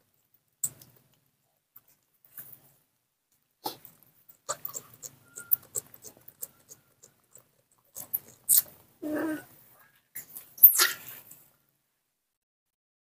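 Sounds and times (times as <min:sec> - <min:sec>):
wet smacking and clicking: 0:00.6 - 0:01.2, 0:03.7 - 0:08.9
throaty animal sound: 0:03.6 - 0:11.3.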